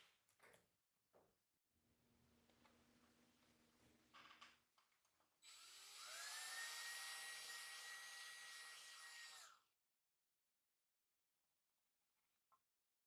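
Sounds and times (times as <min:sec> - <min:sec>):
drill motor whine: 0:05.4 - 0:09.6.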